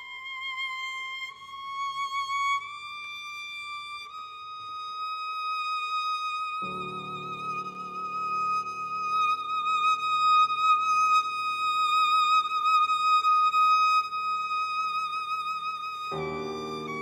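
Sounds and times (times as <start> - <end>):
piano chords: 6.6 - 10.2, 16.1 - 17.0.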